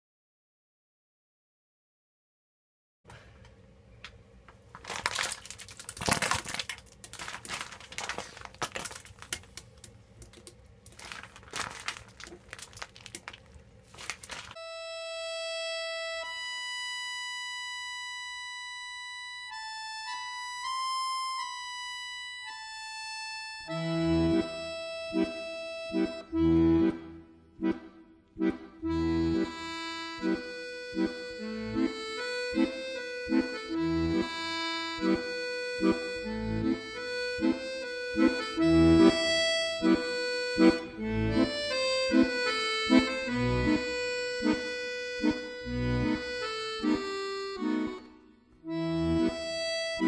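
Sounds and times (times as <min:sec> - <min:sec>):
accordion playing rhythmic tune: 0:14.5 - 0:50.0
music with held chords: 0:14.6 - 0:50.0
bass notes: 0:23.6 - 0:50.0.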